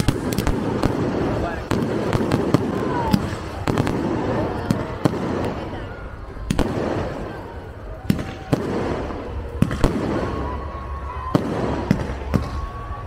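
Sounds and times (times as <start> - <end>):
firework shells bursting: 0.0 - 5.6
firework crackle: 0.0 - 13.0
thin firework whistle: 9.6 - 13.0.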